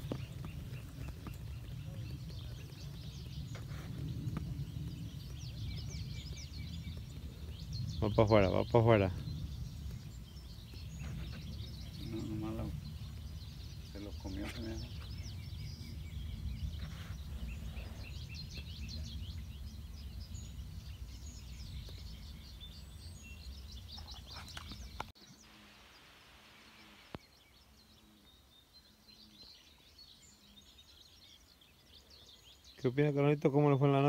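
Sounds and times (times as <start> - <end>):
low rumble: 0.0 - 23.8
birds chirping and calling: 0.0 - 26.0, 26.7 - 34.0.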